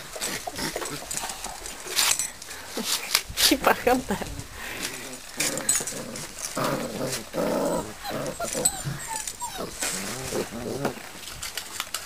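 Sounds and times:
puppies growling: 5.3s - 11.6s
puppies calling: 6.7s - 11.0s.

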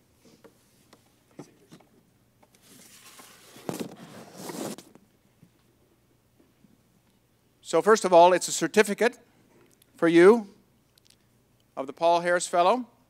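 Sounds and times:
paper rustling: 2.6s - 5.0s.

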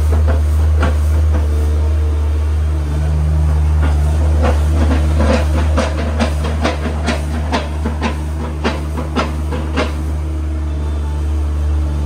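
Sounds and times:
farm machine engine droning: 0.0s - 12.0s
sharp knocks: 3.8s - 10.0s.

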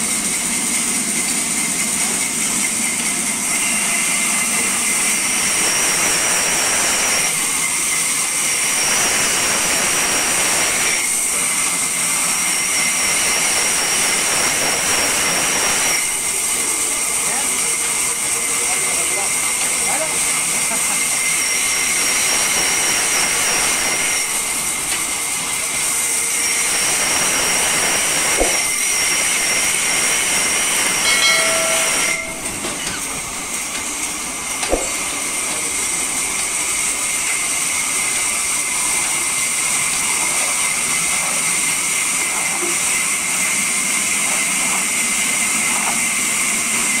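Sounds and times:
band saw cutting log: 2.9s - 40.0s
high squeal: 3.4s - 16.4s, 21.1s - 33.2s.

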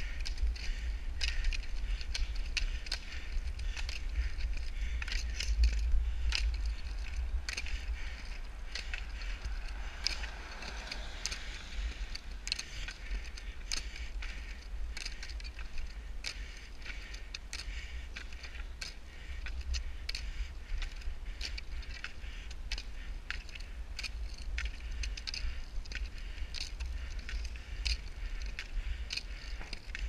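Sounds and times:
low rumble: 0.0s - 15.0s
ski pole tips clicking on asphalt: 0.0s - 30.0s.

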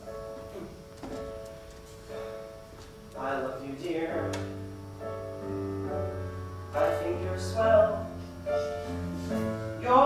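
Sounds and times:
piano-led band playing chords: 0.0s - 10.0s.

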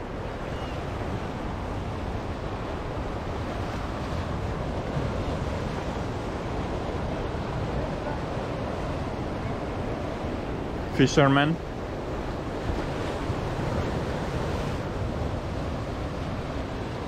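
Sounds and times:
ocean surf on a beach: 0.0s - 17.0s
wind on the microphone: 11.6s - 17.0s.

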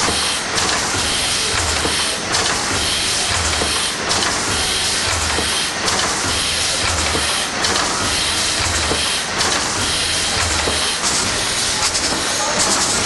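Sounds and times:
steam engine hissing and clattering: 0.0s - 13.0s.

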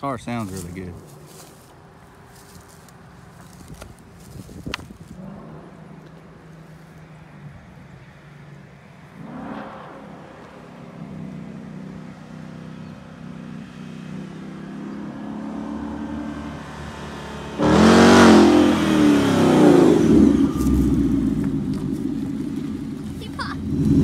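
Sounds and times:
car engine revving and passing: 5.1s - 24.0s.

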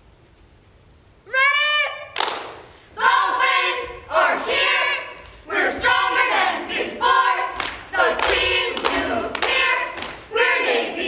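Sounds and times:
cheerleaders chanting in unison: 2.9s - 11.0s.

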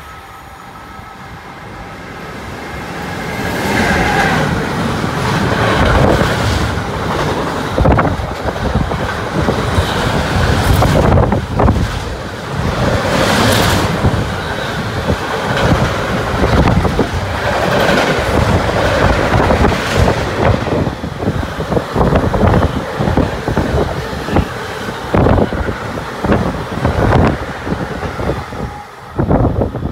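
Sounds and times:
freight train rolling past: 0.0s - 29.9s.

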